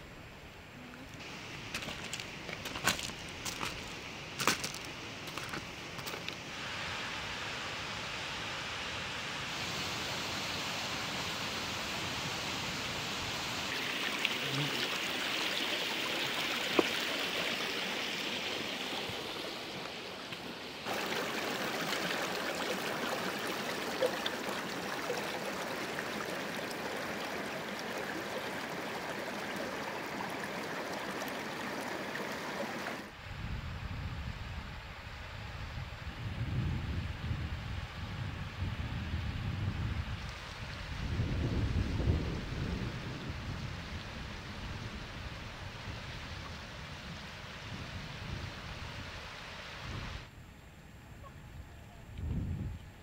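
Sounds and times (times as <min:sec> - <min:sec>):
mountain stream rushing: 0:00.6 - 0:33.2.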